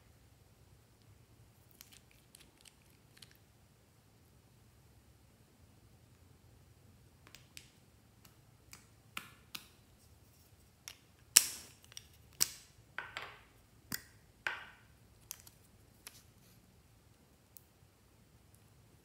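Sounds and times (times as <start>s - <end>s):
plastic caps clicking and popping: 10.8s - 16.2s.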